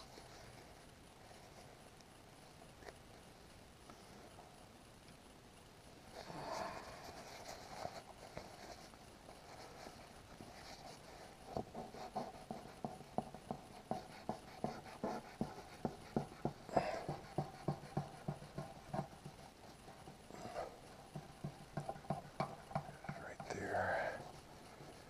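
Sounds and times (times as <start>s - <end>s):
wipe rubbing on painted bumper: 6.8s - 25.0s.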